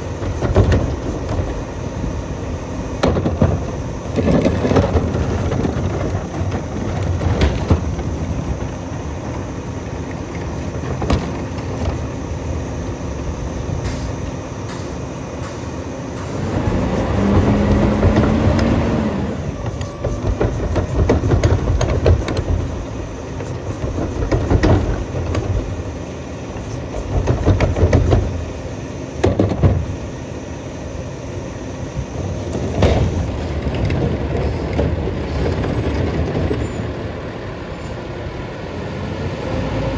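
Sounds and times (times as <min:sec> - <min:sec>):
carts and metal clunking: 0:00.0 - 0:01.9, 0:03.0 - 0:12.6, 0:16.2 - 0:30.0, 0:32.0 - 0:38.0
garbage truck diesel engine revving: 0:11.4 - 0:28.6.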